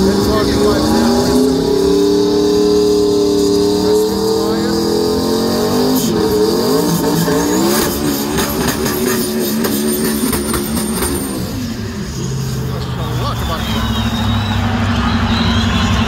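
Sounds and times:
car engine revving hard: 0:00.0 - 0:16.0
engine crackles: 0:00.0 - 0:16.0
thin high turbo whistle: 0:09.6 - 0:16.0.

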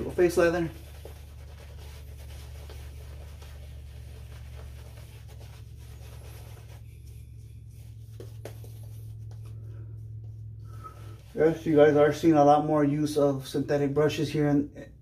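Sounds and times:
shaving brush scratchy strokes: 0:00.0 - 0:09.6
steady low hum: 0:00.0 - 0:15.0.

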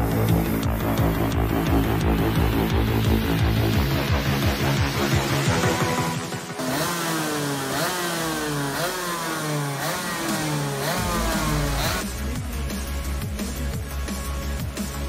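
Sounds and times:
music: 0:00.0 - 0:07.8, 0:08.5 - 0:15.0
two-stroke kart engine revving: 0:00.0 - 0:12.4.

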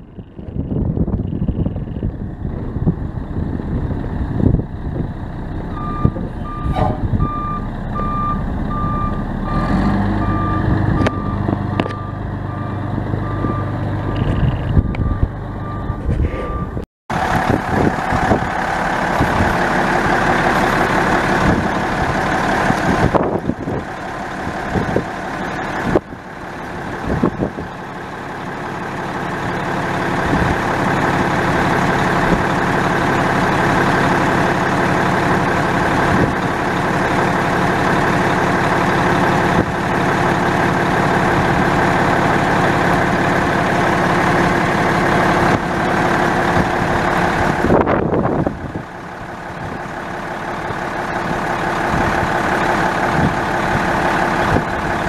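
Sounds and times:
diesel truck engine running: 0:00.0 - 0:55.0
backup alarm beeping: 0:14.9 - 0:16.8.

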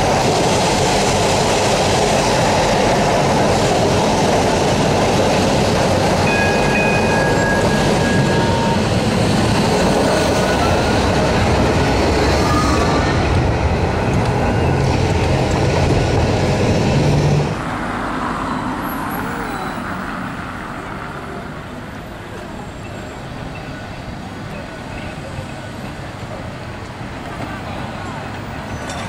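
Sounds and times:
tram motor noise: 0:00.0 - 0:18.0
street sound: 0:00.0 - 0:29.0
tram wheels rumbling on rails: 0:00.0 - 0:29.0.

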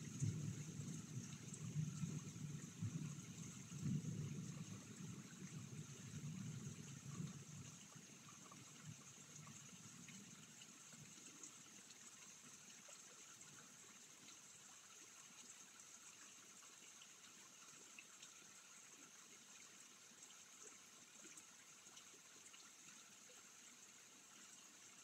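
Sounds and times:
rain pattering: 0:00.0 - 0:14.7.

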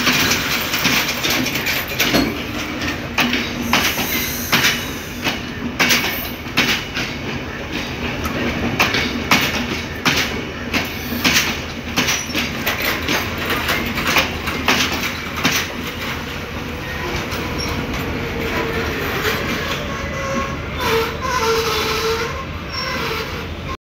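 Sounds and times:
wheels squealing: 0:00.0 - 0:06.4, 0:10.8 - 0:14.2, 0:14.8 - 0:23.6
train wheels clacking over joints: 0:00.0 - 0:23.5.

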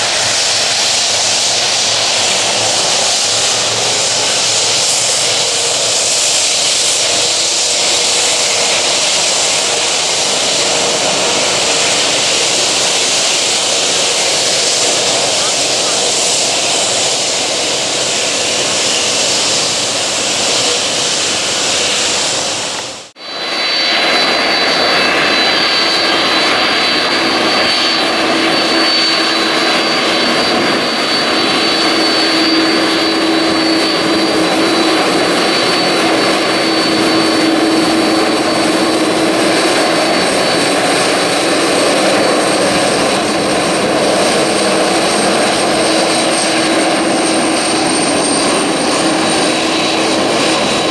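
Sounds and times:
high engine whine: 0:00.0 - 0:50.9
jet engines roaring: 0:00.0 - 0:50.9.

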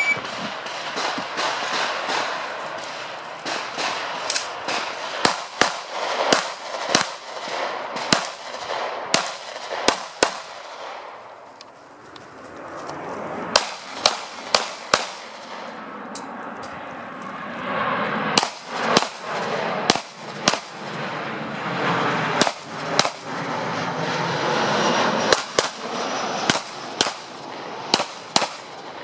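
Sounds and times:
pistol shots in pairs: 0:00.2 - 0:11.1, 0:13.5 - 0:15.7, 0:18.4 - 0:20.8, 0:22.4 - 0:23.3, 0:25.3 - 0:25.8, 0:26.5 - 0:27.3, 0:27.9 - 0:28.7.

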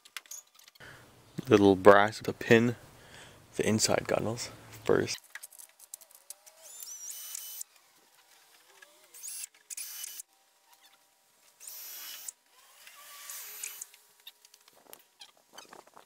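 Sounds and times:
cordless drill whining: 0:06.4 - 0:07.8, 0:11.6 - 0:14.0.

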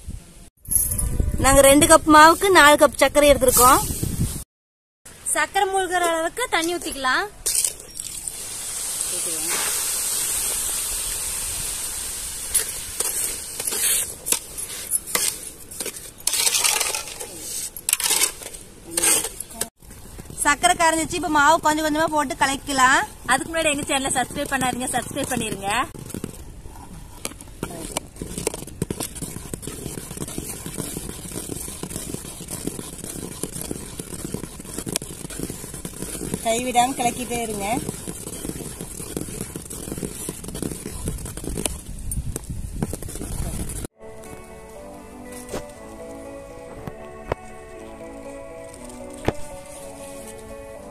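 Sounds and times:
faint hiss: 0:08.0 - 0:15.0
metal ladle scraping pot: 0:12.6 - 0:19.5
ladle stirring in steel pot: 0:27.8 - 0:41.6.

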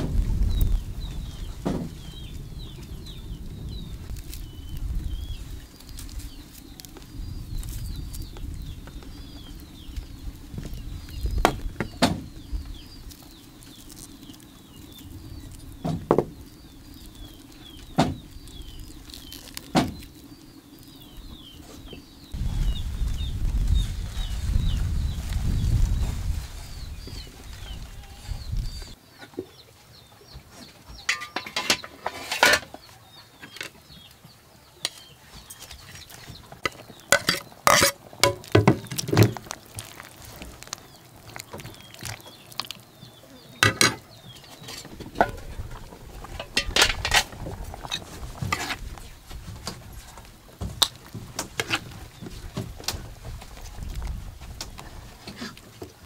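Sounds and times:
pots and dishes clattering: 0:31.0 - 0:32.7, 0:36.7 - 0:39.3, 0:43.6 - 0:44.0.

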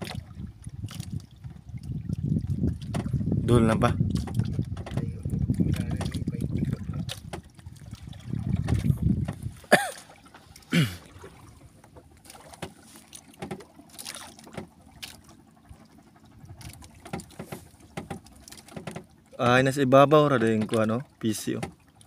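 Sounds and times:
wind buffeting microphone: 0:00.0 - 0:09.9, 0:15.6 - 0:18.0
water around boat: 0:00.0 - 0:22.0.

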